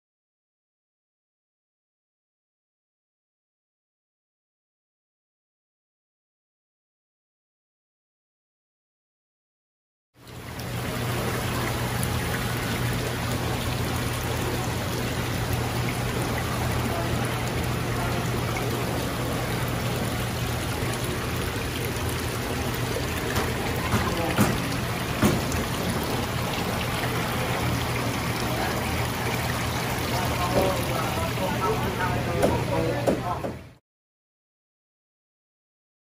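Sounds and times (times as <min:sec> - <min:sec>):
water trickling: 0:10.2 - 0:33.4
low pump hum: 0:10.2 - 0:33.8.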